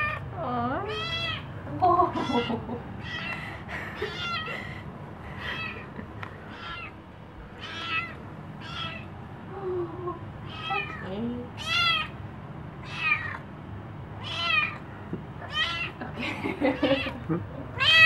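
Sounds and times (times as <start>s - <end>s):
kitten meowing: 0.9s - 1.4s, 2.2s - 3.4s, 4.0s - 4.5s, 6.5s - 6.9s, 7.6s - 9.1s, 11.6s - 12.2s, 12.8s - 13.4s, 14.2s - 14.8s, 15.4s - 16.0s, 17.8s - 18.0s.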